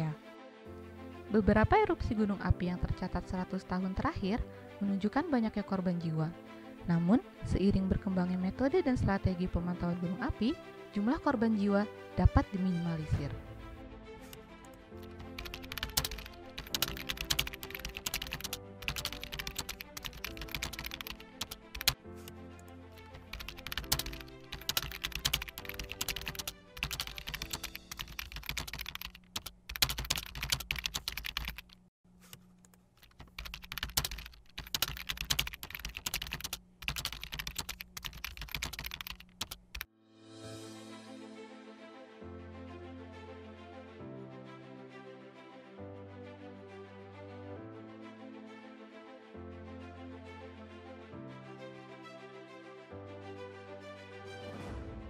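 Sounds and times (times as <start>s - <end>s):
soft background music: 0.0s - 31.6s, 39.9s - 55.0s
keyboard typing: 14.2s - 39.9s.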